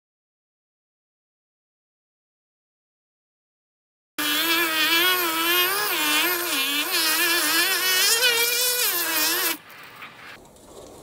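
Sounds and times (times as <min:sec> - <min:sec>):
electric motor tone: 0:04.2 - 0:09.6
sandpaper sanding spinning wheel: 0:04.2 - 0:09.6.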